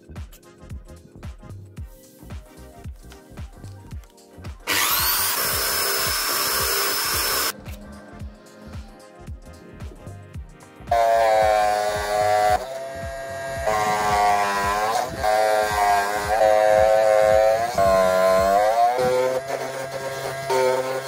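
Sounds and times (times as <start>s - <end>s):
background music with beat: 0.0s - 21.0s
small saw whining cutting plastic: 4.7s - 7.6s, 10.9s - 21.0s.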